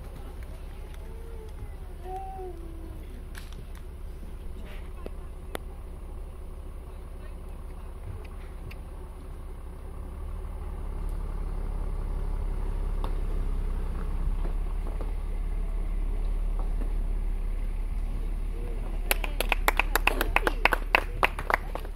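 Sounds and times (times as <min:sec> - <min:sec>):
low steady rumble: 0:00.0 - 0:21.9
hand clapping: 0:19.0 - 0:21.9.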